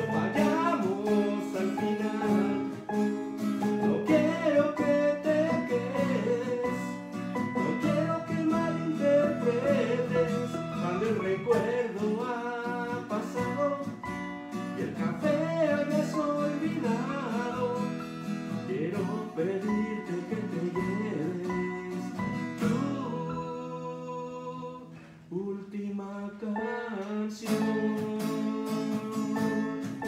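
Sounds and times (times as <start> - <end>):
electronic keyboard playing: 0.0 - 12.0
acoustic guitar strumming: 0.0 - 25.2, 26.6 - 30.0.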